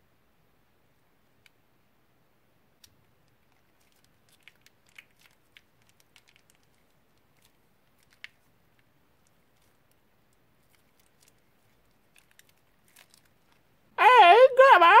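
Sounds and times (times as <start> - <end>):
plastic piping bag crinkling: 2.8 - 13.8.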